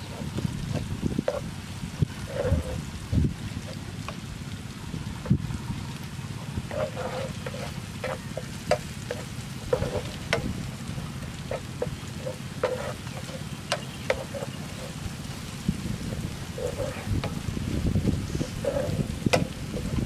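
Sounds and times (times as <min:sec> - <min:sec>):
spatula scraping and tapping pan: 0:00.0 - 0:01.5, 0:02.1 - 0:02.8, 0:06.4 - 0:15.3, 0:16.0 - 0:17.5, 0:18.4 - 0:20.0
garlic frying in oil: 0:00.0 - 0:20.0
steady low rumble: 0:00.0 - 0:20.0.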